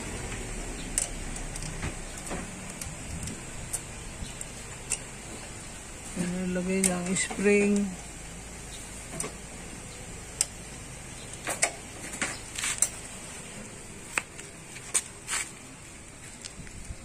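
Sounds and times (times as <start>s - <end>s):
metallic clicks of pliers: 0.8s - 5.1s.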